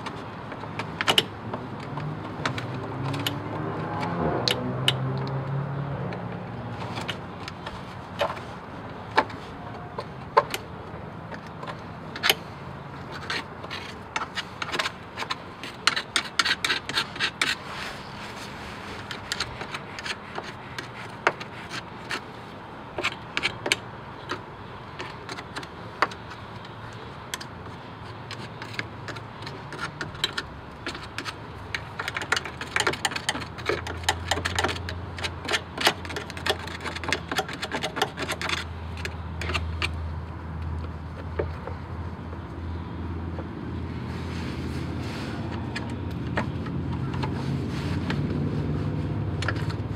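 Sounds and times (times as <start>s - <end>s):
hand tool scraping and chipping: 6.8s - 40.1s.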